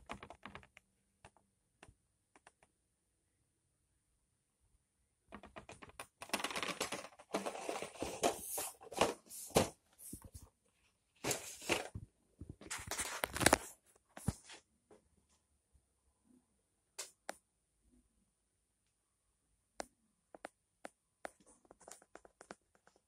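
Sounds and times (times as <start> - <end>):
cardboard box rustling: 6.4 - 10.3, 11.2 - 11.9.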